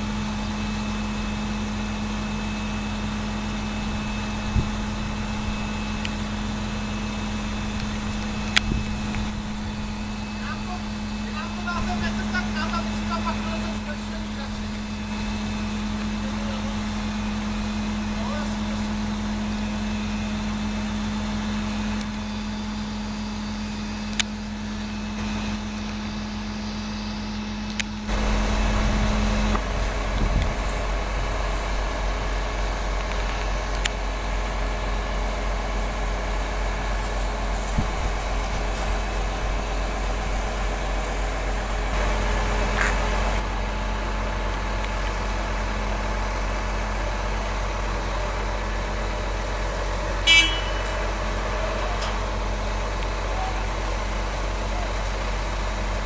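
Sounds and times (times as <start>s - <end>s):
crane diesel engine running: 0.0s - 56.0s.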